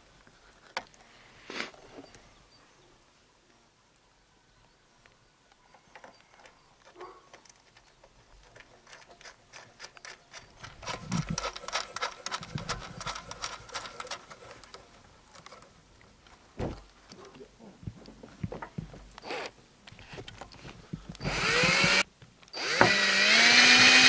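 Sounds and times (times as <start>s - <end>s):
quick clicks and rubbing on metal: 5.7s - 18.2s.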